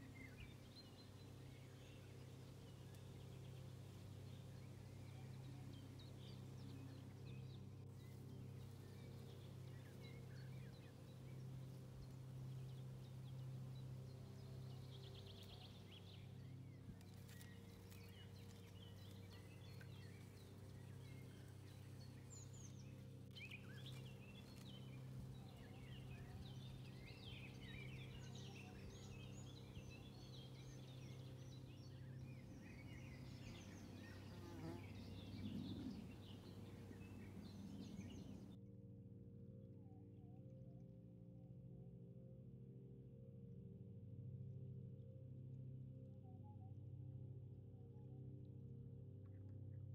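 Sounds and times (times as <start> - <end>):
small birds chirping: 0.0 - 38.6
steady low hum: 0.0 - 38.6.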